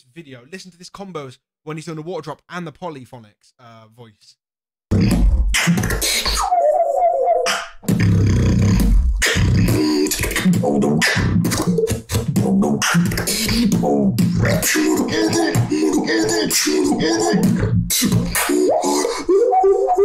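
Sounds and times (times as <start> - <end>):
beatbox vocal bass kicks and clicks: 4.9 - 6.5, 7.5 - 19.2.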